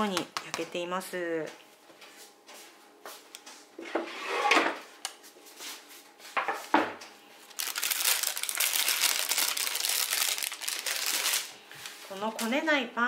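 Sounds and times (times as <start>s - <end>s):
baking parchment crinkling: 7.5s - 12.8s.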